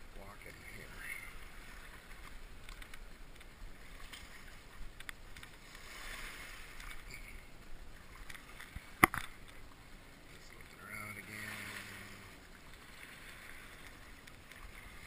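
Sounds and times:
small waves lapping: 0.0 - 15.0.

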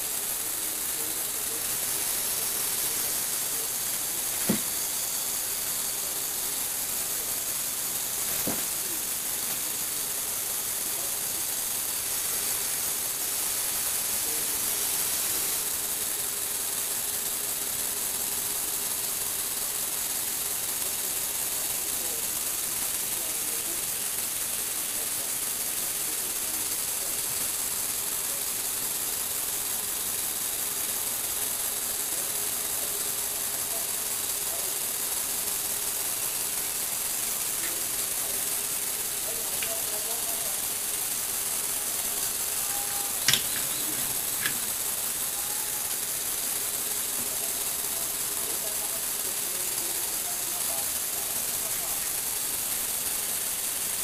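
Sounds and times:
sharp click: 43.1 - 44.8.

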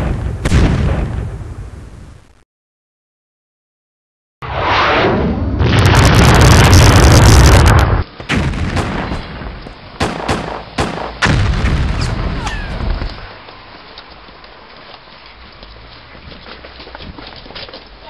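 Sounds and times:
sharp gunshots: 0.0 - 1.4, 5.6 - 12.5
loud explosion rumbling: 0.0 - 1.8, 4.4 - 13.2.

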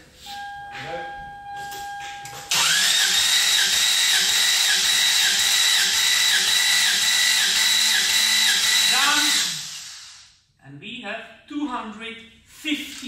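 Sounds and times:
starter motor cranking engine: 2.5 - 10.2.

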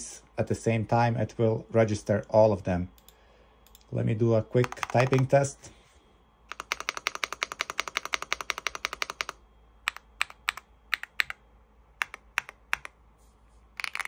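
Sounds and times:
mechanical keyboard typing: 4.6 - 5.4, 6.5 - 11.4, 12.0 - 13.0, 13.8 - 14.0.

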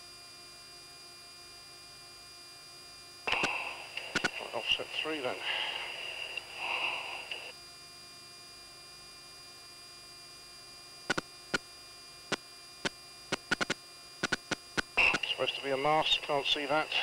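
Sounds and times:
electrical hum with high whine: 0.0 - 17.0
sharp clicks: 3.3 - 4.4, 11.1 - 11.6, 12.3 - 15.3.

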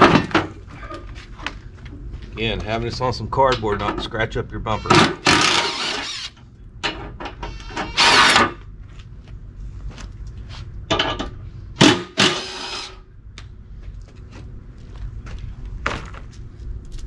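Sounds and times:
impact wrench bursts: 4.8 - 6.4, 7.5 - 8.6, 11.8 - 13.0.

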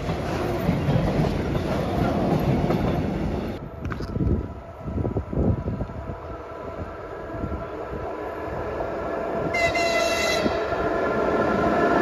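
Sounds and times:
high locomotive horn: 9.5 - 10.7.

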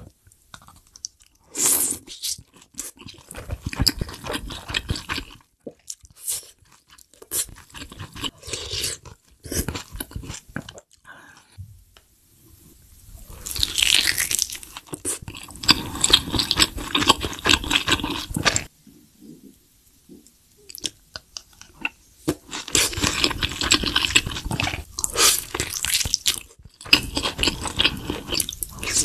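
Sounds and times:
chewing food: 2.1 - 11.1, 13.4 - 18.7, 20.2 - 29.0.

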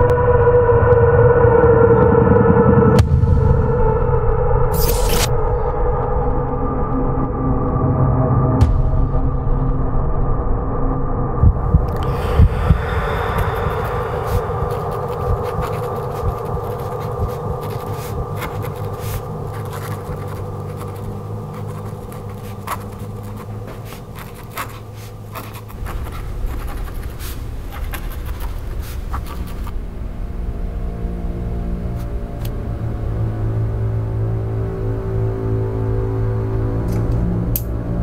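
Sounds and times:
low steady hum: 2.7 - 38.0
pen scratching on paper: 11.9 - 29.8.

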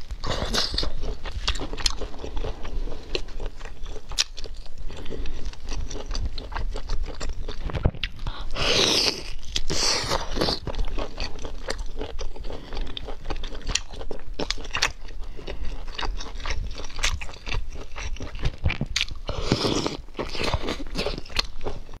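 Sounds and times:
person chewing food: 0.0 - 22.0
breathing: 4.8 - 5.9, 12.4 - 13.2, 15.0 - 16.1.

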